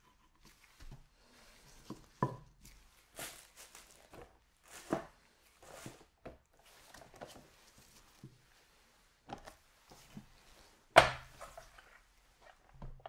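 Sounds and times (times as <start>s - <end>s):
packaging scrapes and rustles: 2.7s - 8.1s.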